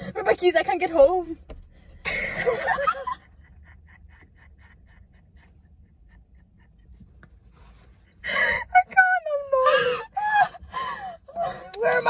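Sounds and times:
women laughing: 2.1s - 7.2s.

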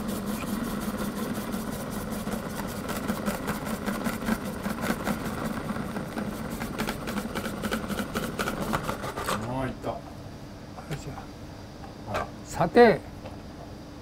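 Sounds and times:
food processor motor hum: 0.0s - 9.2s
rattle of vegetable shredding: 0.0s - 9.5s.

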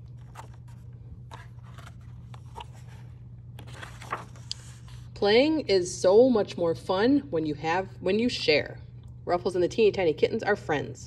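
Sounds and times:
book pages rustling and turning: 0.0s - 5.1s
steady low hum: 0.0s - 11.0s.

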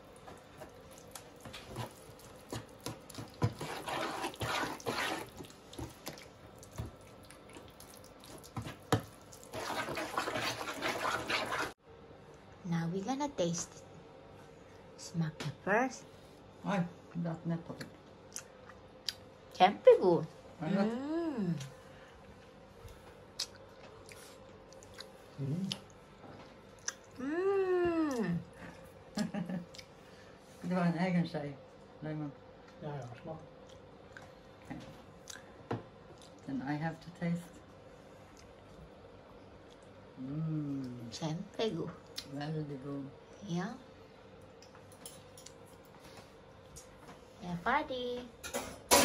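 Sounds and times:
spoon squelching mashed berries: 0.1s - 11.8s
person humming mm: 20.8s - 21.7s, 27.2s - 28.5s, 40.2s - 41.0s.

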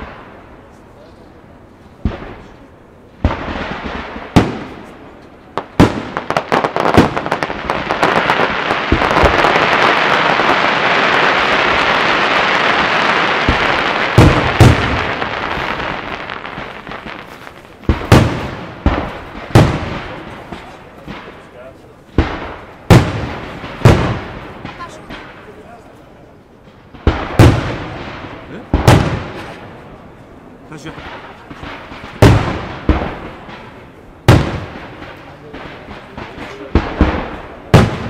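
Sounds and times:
firework crackling hiss: 0.0s - 26.1s
firework bangs: 0.0s - 38.0s.

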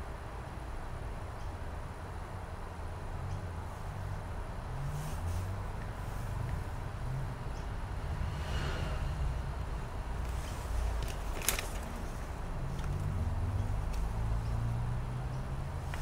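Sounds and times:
low background rumble: 3.6s - 14.6s.

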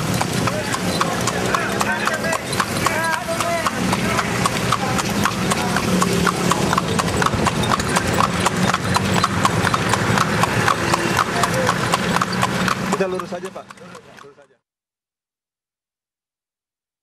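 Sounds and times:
horse hooves clip-clopping on pavement: 0.0s - 14.6s.

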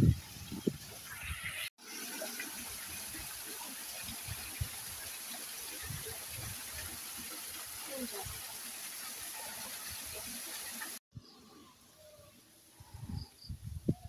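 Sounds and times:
water rushing: 0.0s - 11.0s.

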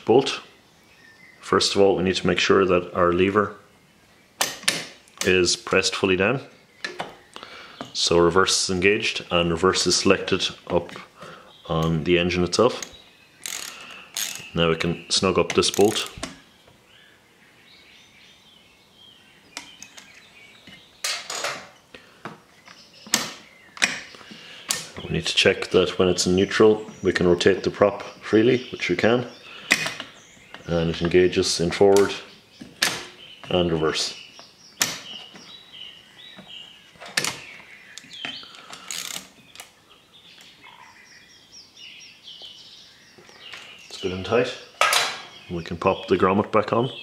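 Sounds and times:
birds chirping faintly: 0.0s - 47.0s
socket ratchet clicking: 13.4s - 14.5s, 38.8s - 39.7s.

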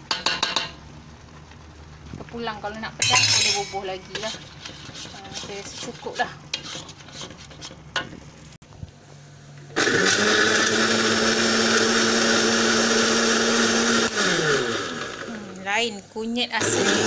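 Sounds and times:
blender running: 9.7s - 15.6s, 16.6s - 17.0s.

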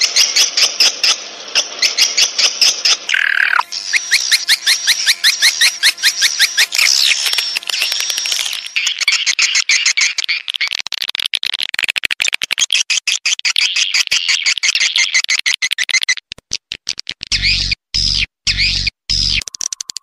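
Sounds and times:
swiftlets twittering and chirping: 0.0s - 11.3s.

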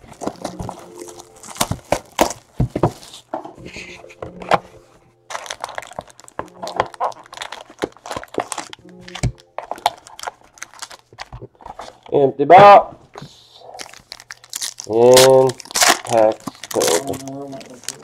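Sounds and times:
crackling wrapper and cardboard: 0.0s - 12.2s, 13.2s - 18.0s.

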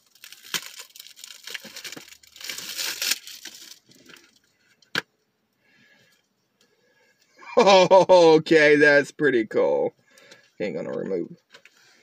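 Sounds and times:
plastic packaging crinkling: 0.0s - 4.4s.

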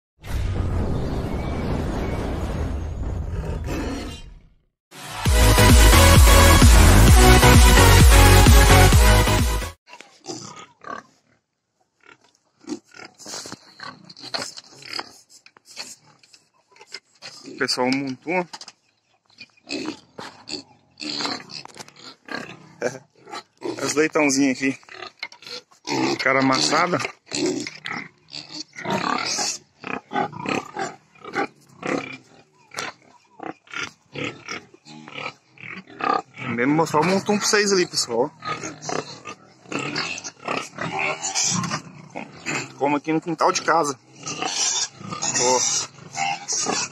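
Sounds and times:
pig grunting: 3.3s - 4.4s, 10.0s - 11.4s, 12.0s - 18.5s, 19.4s - 46.9s
electronic intro music: 4.9s - 9.8s.

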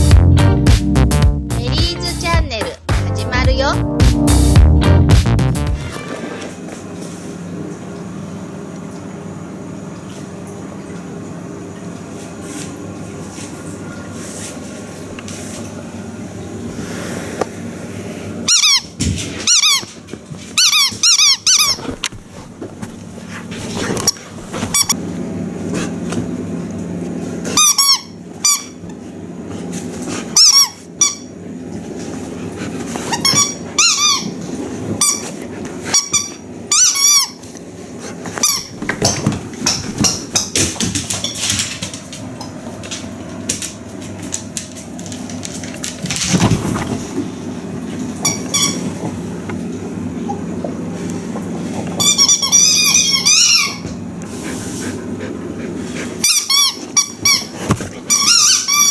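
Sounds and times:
squeaky toy squeaking: 52.0s - 53.8s.

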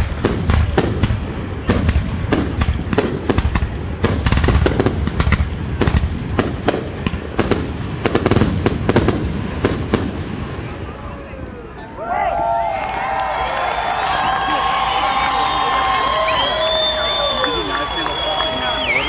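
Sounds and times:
fireworks banging: 0.0s - 11.0s
fireworks crackling: 0.0s - 11.4s, 14.4s - 19.0s.

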